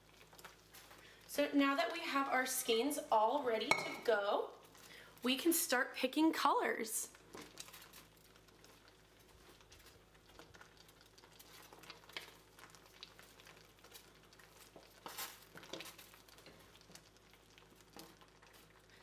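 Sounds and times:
simmering water ticks and pops: 0:00.0 - 0:02.4, 0:07.1 - 0:19.0
low steady hum: 0:00.1 - 0:05.4.

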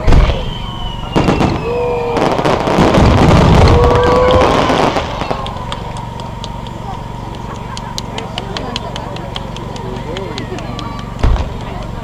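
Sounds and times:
fireworks booms and crackling: 0:00.0 - 0:07.5, 0:10.7 - 0:12.0.

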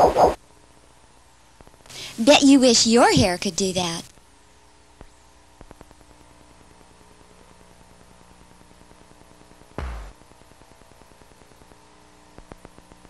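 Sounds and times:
faint steady hum: 0:00.0 - 0:13.0
low thud: 0:09.8 - 0:10.2.

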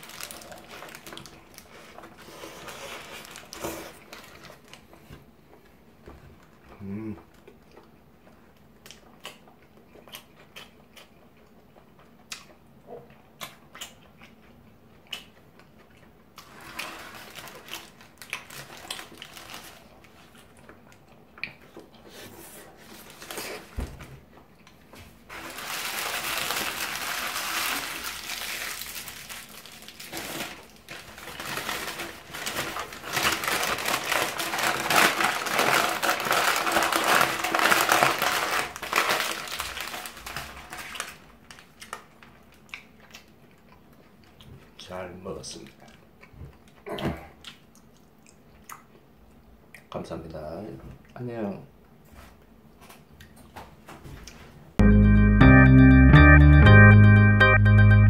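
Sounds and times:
paper wrapper crinkling: 0:00.0 - 0:04.8, 0:16.4 - 0:20.5, 0:22.8 - 0:23.8, 0:25.3 - 0:42.4
chewing and mouth clicks: 0:07.4 - 0:16.4, 0:20.1 - 0:22.0, 0:41.8 - 0:44.8, 0:47.4 - 0:50.0.

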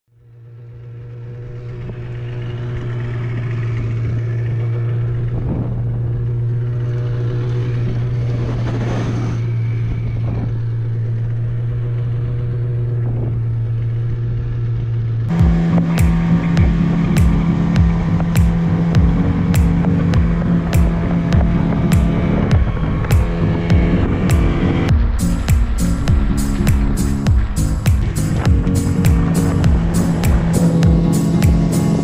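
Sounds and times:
outboard motor running: 0:00.2 - 0:32.0.

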